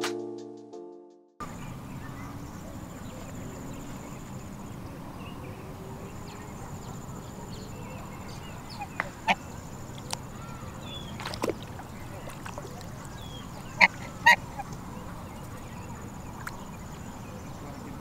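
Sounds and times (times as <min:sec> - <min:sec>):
outdoor background noise: 0:01.4 - 0:18.0
goose calls: 0:08.2 - 0:09.7, 0:13.3 - 0:15.2
goose dabbling in water: 0:10.9 - 0:16.8
splashy clicks: 0:11.0 - 0:14.8.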